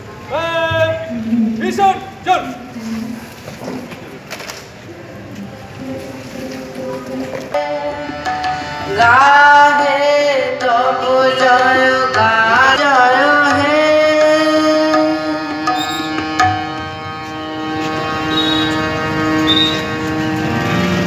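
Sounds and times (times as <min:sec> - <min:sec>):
harmonium: 0:05.4 - 0:21.0
boy singing into microphone: 0:05.8 - 0:16.4
tabla strokes: 0:10.5 - 0:21.0.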